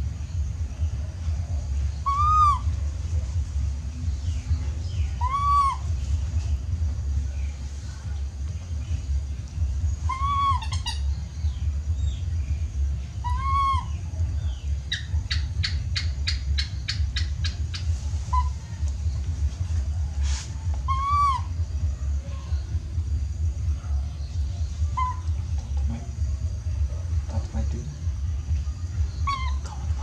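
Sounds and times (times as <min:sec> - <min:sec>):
low rumble: 0:00.0 - 0:30.0
baby monkey coo calls: 0:01.9 - 0:02.9, 0:04.8 - 0:06.3, 0:09.8 - 0:12.2, 0:13.1 - 0:19.1, 0:20.6 - 0:21.8, 0:24.0 - 0:26.2, 0:29.0 - 0:30.0.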